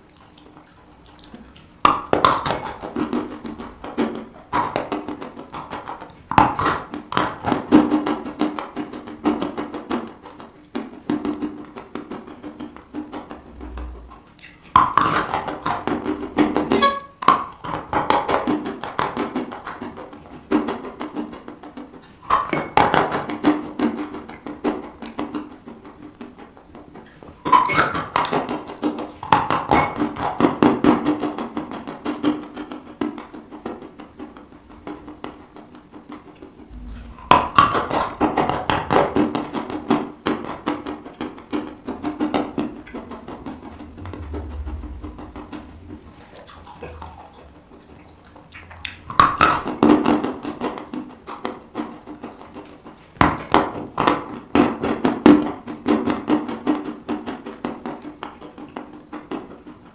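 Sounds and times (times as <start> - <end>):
dry crunching chews: 0.0 - 1.8.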